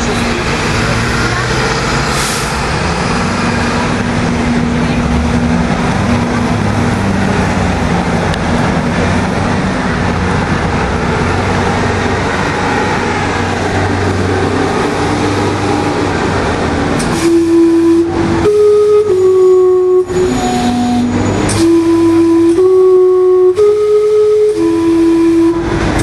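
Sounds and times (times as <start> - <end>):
steam whistle note: 17.1 - 25.7.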